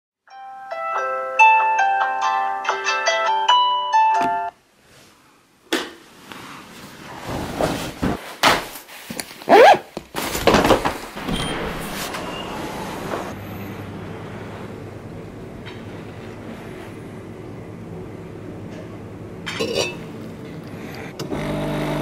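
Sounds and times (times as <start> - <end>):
suitcase scraping and rustling: 6.7 - 13.4
low steady hum: 13.3 - 21.2.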